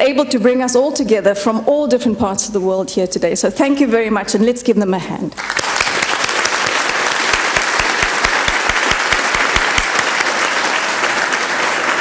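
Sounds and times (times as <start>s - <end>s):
audience applauding: 5.4s - 12.0s
close claps: 5.4s - 12.0s.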